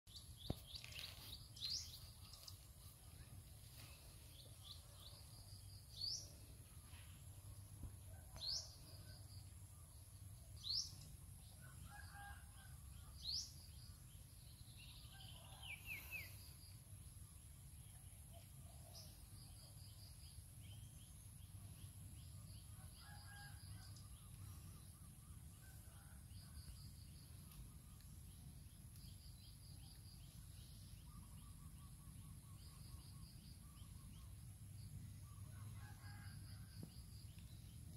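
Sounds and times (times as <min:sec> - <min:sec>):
faint bird chirps and trills: 0:00.1 - 0:37.9.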